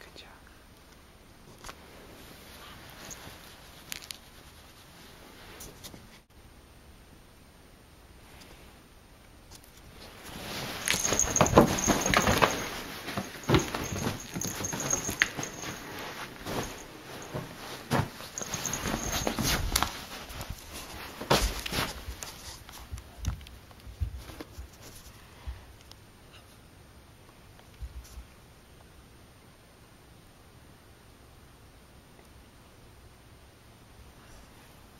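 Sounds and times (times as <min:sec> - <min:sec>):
cat scuffling in bedding: 0:09.9 - 0:22.9.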